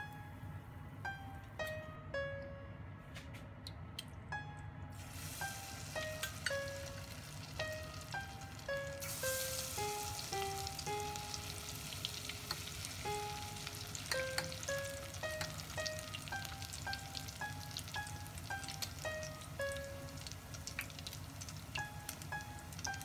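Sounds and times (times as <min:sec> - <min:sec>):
background music with held notes: 0:00.0 - 0:23.0
oil sizzling and crackling: 0:05.0 - 0:23.0.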